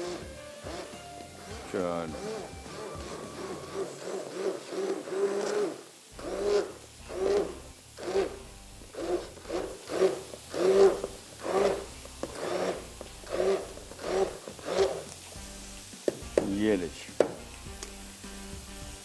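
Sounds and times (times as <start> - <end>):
hand blender whirring: 0.0 - 16.5.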